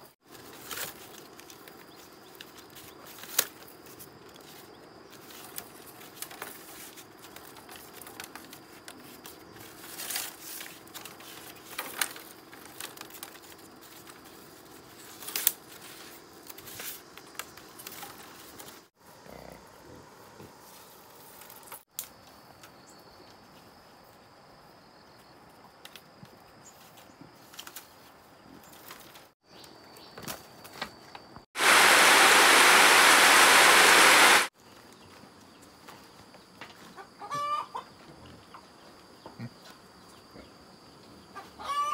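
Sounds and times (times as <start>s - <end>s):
bamboo strips clicking and knocking: 0.4s - 18.9s, 25.8s - 28.1s
heavy rain pouring off roof: 31.6s - 34.5s.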